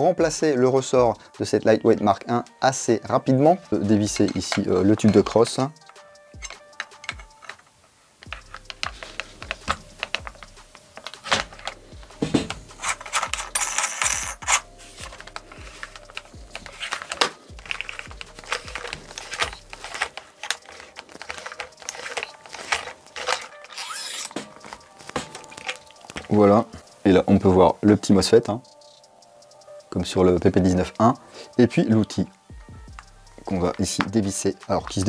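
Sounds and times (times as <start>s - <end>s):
clicks and knocks of plastic parts: 4.1s - 26.4s.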